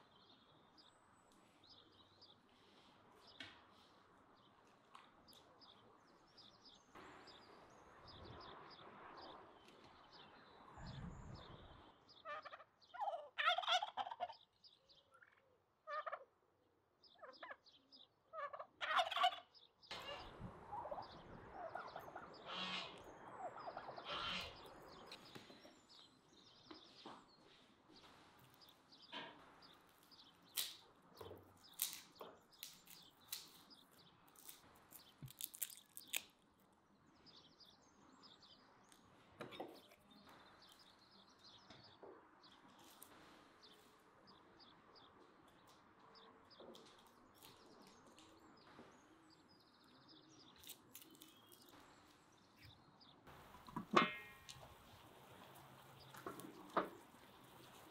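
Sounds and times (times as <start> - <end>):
turkeys gobbling: 12.3 - 14.4, 15.2 - 16.3, 17.2 - 17.6, 18.3 - 24.7
garlic cloves being peeled: 29.9 - 36.5, 50.5 - 51.8.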